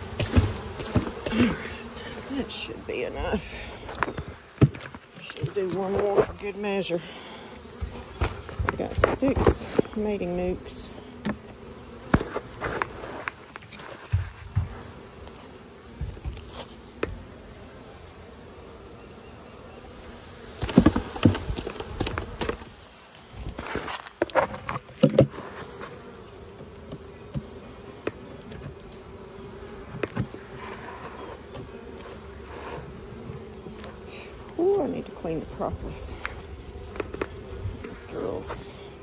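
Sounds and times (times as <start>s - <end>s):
honeybees buzzing: 0.0s - 39.0s
wooden hive frames knocking: 15.9s - 17.3s.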